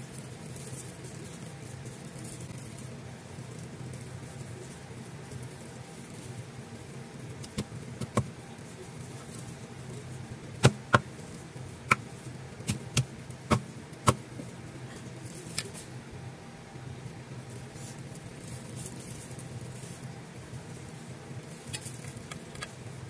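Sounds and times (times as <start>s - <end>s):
steady low hum: 0.0s - 23.0s
cleaver chopping on wooden block: 13.5s - 14.2s.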